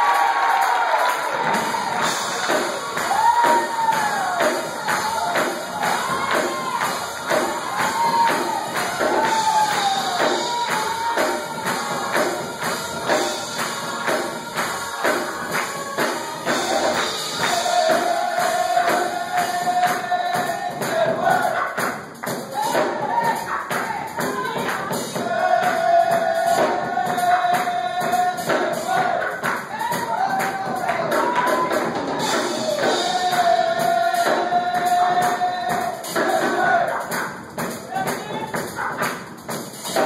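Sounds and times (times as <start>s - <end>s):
hand clapping: 0.0s - 21.0s, 28.6s - 31.6s, 37.0s - 40.0s
gospel choir singing: 0.0s - 40.0s.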